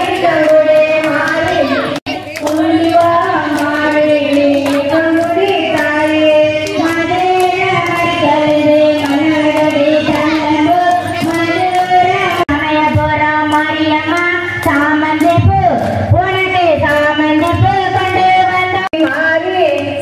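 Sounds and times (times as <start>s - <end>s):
hand claps: 0.0s - 12.5s, 13.4s - 20.0s
high-pitched voice singing: 1.1s - 2.4s.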